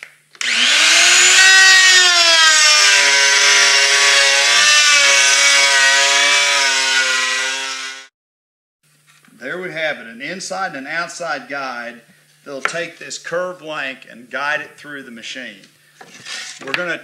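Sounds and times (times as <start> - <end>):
router motor whining: 0.4 - 8.1.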